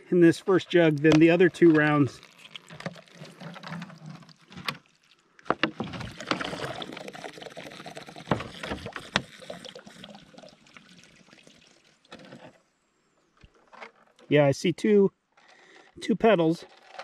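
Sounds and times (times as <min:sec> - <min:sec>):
water gushing and splashing: 0:00.4 - 0:12.4
thin plastic crackling: 0:00.7 - 0:10.1, 0:16.6 - 0:17.0.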